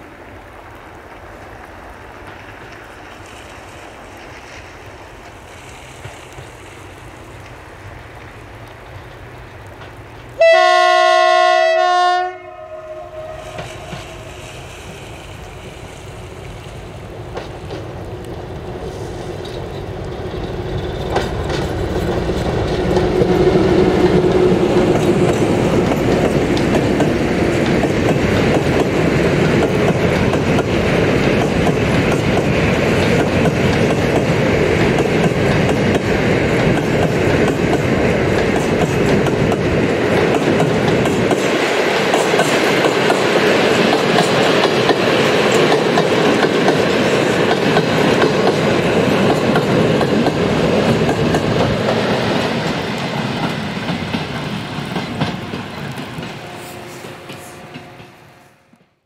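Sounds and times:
diesel locomotive engine: 0.0 - 59.0
train wheels clattering over rail joints: 17.2 - 18.0, 18.8 - 56.5.

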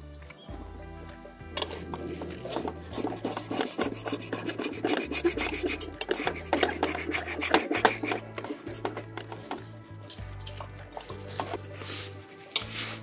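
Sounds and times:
metal scraper rasping on steel: 1.6 - 9.6.

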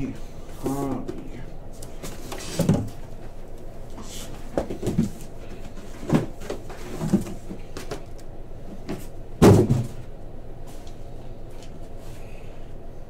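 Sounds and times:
card boxes knocking on table: 9.4 - 10.0
heavy thud on table: 9.4 - 10.0.

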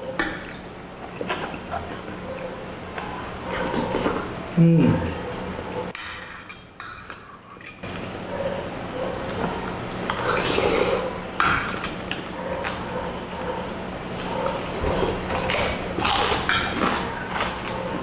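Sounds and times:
chewing: 1.0 - 4.3, 14.2 - 18.0.

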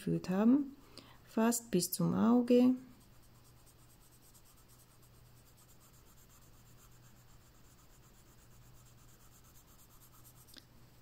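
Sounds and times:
pencil scratching on paper: 2.9 - 10.5.

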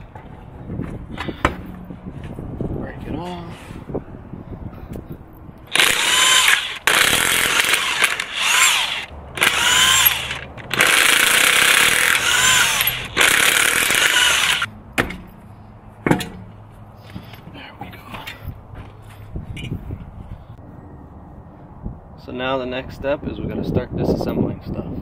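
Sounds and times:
impact wrench hammering: 5.8 - 15.3.

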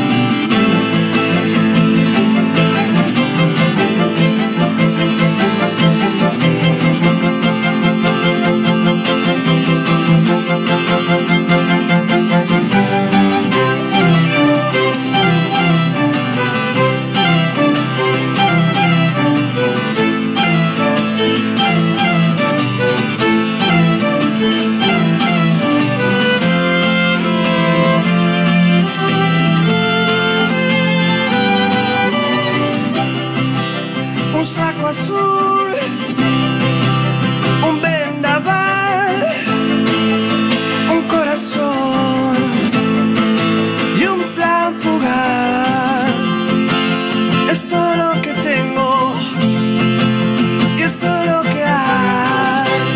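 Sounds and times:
plucked strings: 0.0 - 52.9
strummed acoustic guitar: 0.0 - 52.9
violins bowing a melody: 0.0 - 52.9.

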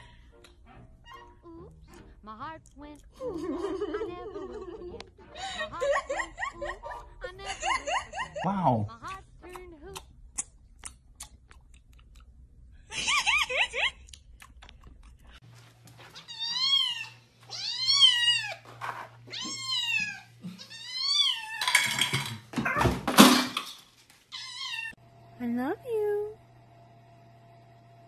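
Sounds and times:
cat meowing: 16.2 - 18.6, 19.3 - 21.7, 24.3 - 25.0.

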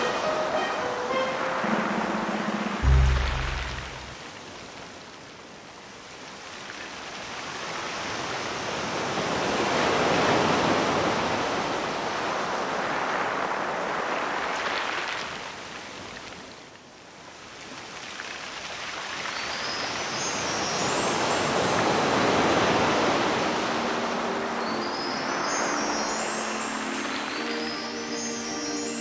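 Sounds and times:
sea surf rushing: 0.0 - 4.6, 19.2 - 29.0.

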